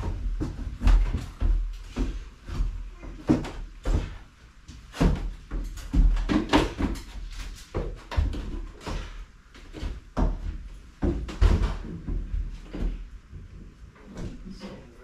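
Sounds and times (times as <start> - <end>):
thumps and knocks on wood: 0.0 - 13.6
heavy footsteps on wooden stairs: 0.0 - 14.6.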